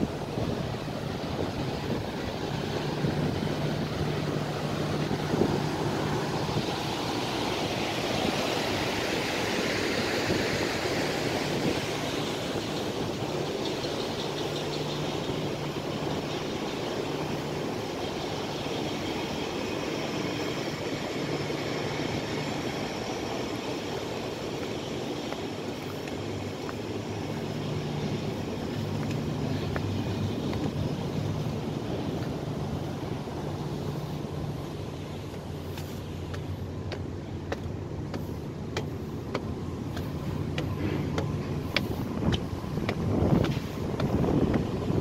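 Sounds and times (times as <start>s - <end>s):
wind noise on microphone: 0.0s - 16.3s, 39.2s - 45.0s.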